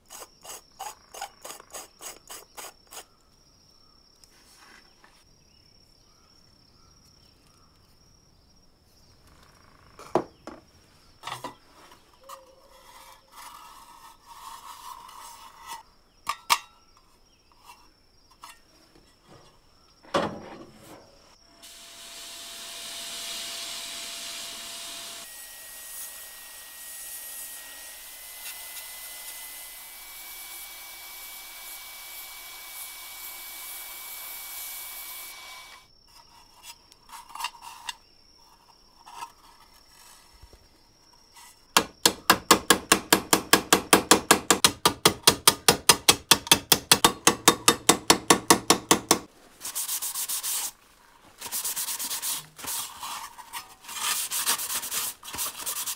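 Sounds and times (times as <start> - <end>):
hiss of sandblasting grit: 21.6 - 35.8
hammer striking sheet metal: 41.8 - 49.3.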